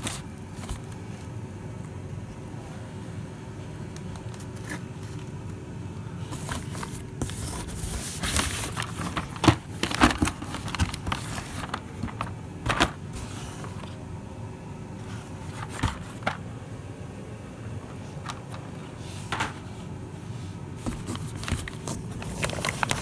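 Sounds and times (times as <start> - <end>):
cardboard and plastic rustling: 0.0 - 1.4, 4.2 - 5.6, 6.2 - 14.0, 15.0 - 16.6, 17.7 - 19.8, 20.6 - 23.0
steady low hum: 0.0 - 23.0.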